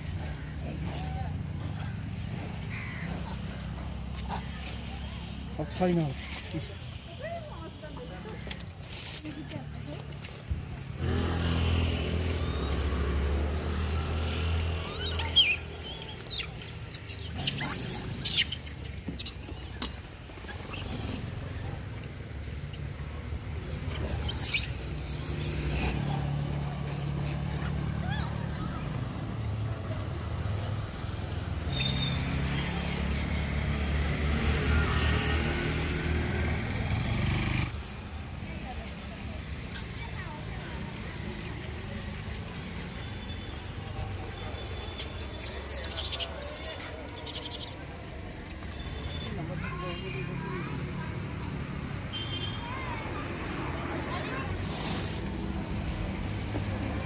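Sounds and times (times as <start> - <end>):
vehicle engine rumbling: 0.0 - 52.0
monkeys squealing: 12.1 - 13.3, 14.3 - 19.8, 23.8 - 29.0, 31.7 - 33.2, 44.8 - 47.8.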